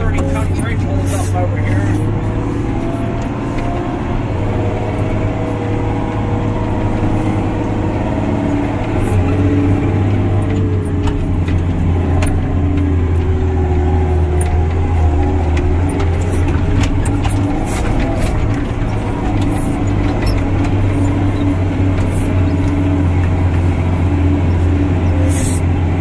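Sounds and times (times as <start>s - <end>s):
diesel truck engine running: 0.0s - 26.0s
faint rattles: 8.8s - 25.7s.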